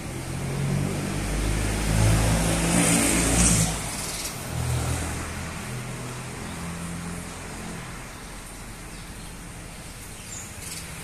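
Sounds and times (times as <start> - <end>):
vehicle engine passing by: 0.0 - 8.2.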